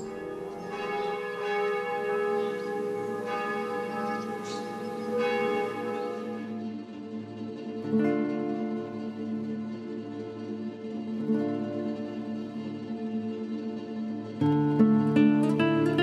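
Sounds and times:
church bells ringing: 0:00.0 - 0:07.2.

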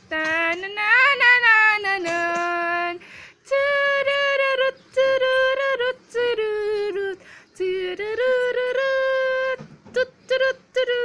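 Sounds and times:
high voice singing wordless tune: 0:00.0 - 0:11.0.

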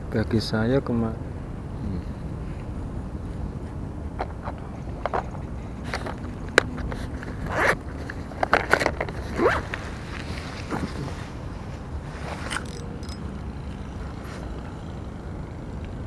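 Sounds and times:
fishing tackle click: 0:12.5 - 0:13.2.

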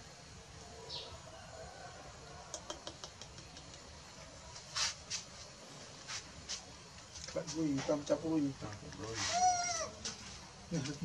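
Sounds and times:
scratchy rustles: 0:04.5 - 0:08.0, 0:09.0 - 0:11.0.

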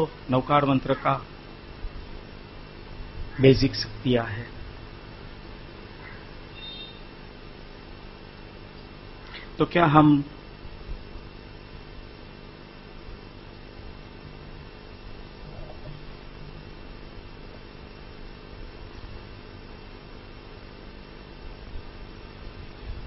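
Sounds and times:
electrical hum with hiss: 0:00.0 - 0:23.0.

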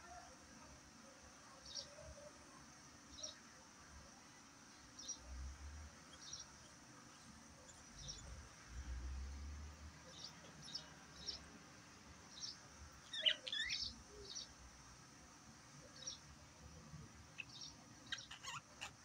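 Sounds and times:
budgerigars chirping: 0:13.1 - 0:14.4, 0:17.4 - 0:19.0.

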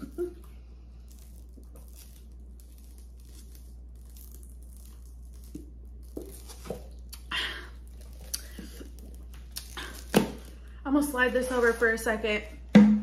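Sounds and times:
steady low hum: 0:00.0 - 0:13.0
crinkling and rustling: 0:01.0 - 0:07.2.

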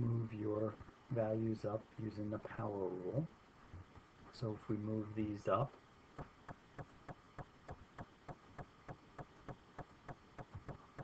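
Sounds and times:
faint evenly spaced clicks: 0:06.1 - 0:11.0.

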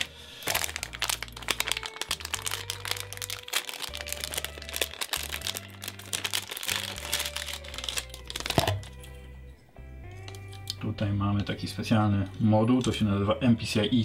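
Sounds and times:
plastic bags crinkling: 0:00.0 - 0:09.1
background music with bass line: 0:00.0 - 0:14.0.

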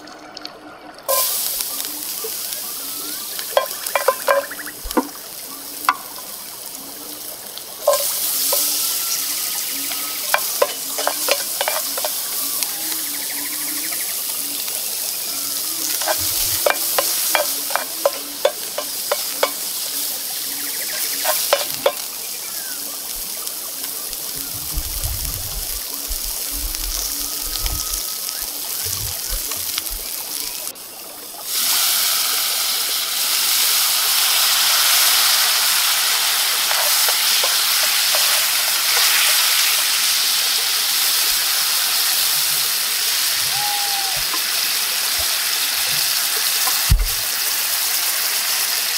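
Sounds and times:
food sizzling in oil: 0:01.0 - 0:48.9
wine boiling off in hot pan: 0:01.1 - 0:48.9.

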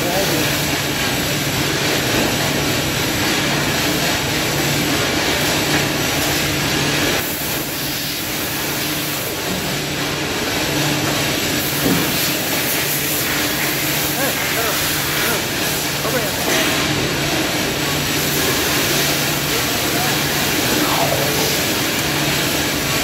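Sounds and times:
machinery hiss: 0:05.4 - 0:23.0.

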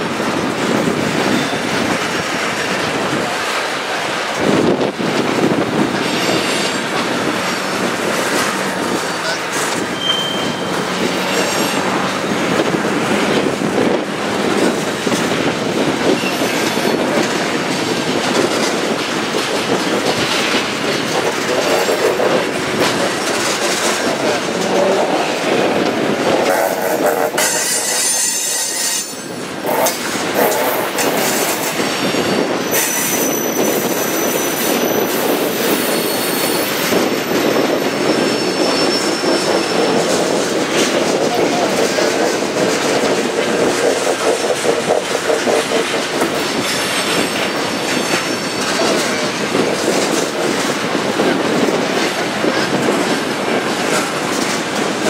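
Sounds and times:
clatter over rail joints: 0:00.0 - 0:55.0
train wheels rumbling on rails: 0:00.0 - 0:55.0
high-pitched wheel squeals: 0:06.0 - 0:06.8, 0:08.4 - 0:12.0, 0:26.5 - 0:40.3.

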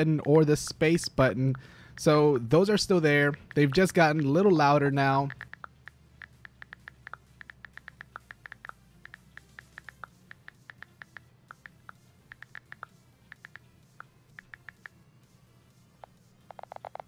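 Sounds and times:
phone keyboard clicks: 0:05.3 - 0:15.0, 0:16.0 - 0:17.0.

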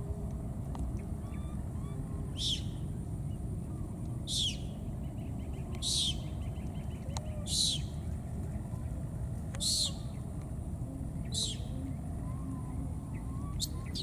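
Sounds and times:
steady low rumble: 0:00.0 - 0:14.0
bird chicks high piercing calls: 0:00.9 - 0:08.9, 0:09.6 - 0:10.3, 0:11.0 - 0:14.0.

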